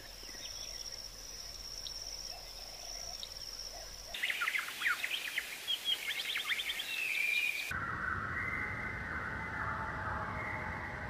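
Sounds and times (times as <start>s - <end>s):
high insect drone: 0.0s - 7.7s
birds chirping: 0.0s - 7.8s.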